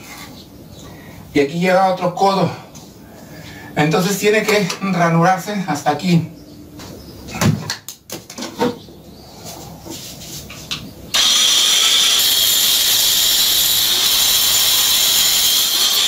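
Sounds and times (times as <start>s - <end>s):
angle grinder cutting concrete: 11.1s - 16.0s.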